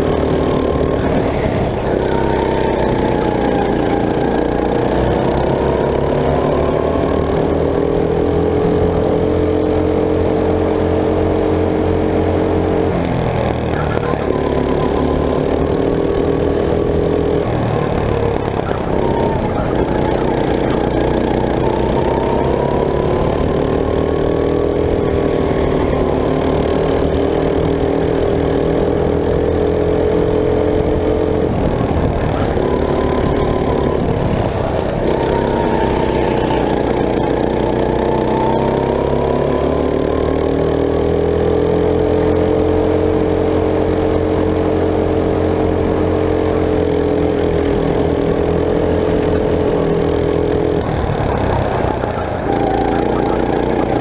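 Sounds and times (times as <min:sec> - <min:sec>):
go-kart engine: 0:00.0 - 0:54.0
wind noise on microphone: 0:27.0 - 0:39.2, 0:47.0 - 0:54.0.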